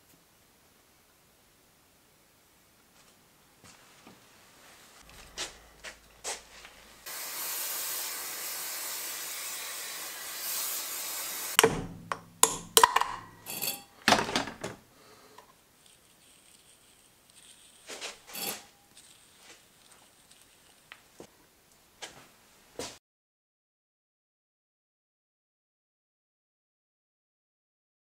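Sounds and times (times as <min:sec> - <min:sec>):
spray hiss: 0:06.2 - 0:11.6
metal parts clanking: 0:11.6 - 0:14.8, 0:18.3 - 0:19.1.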